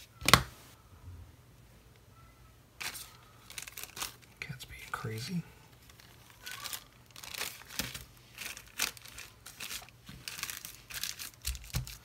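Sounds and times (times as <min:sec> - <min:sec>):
plastic bag crinkling: 0:02.8 - 0:04.4, 0:05.0 - 0:12.0.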